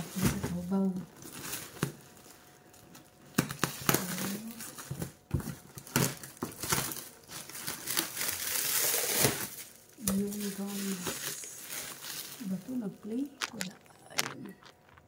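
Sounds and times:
plastic wrapping crinkling: 0.0 - 15.0
scissors cutting plastic: 3.3 - 15.0.

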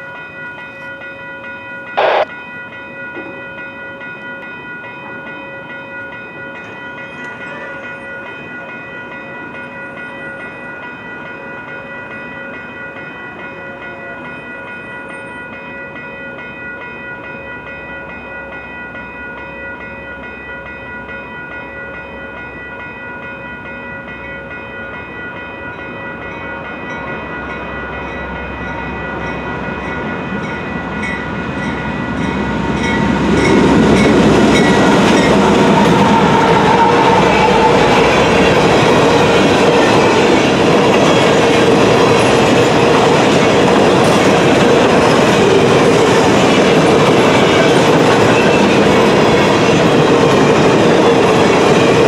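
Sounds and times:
approaching train rumble: 23.4 - 52.0.

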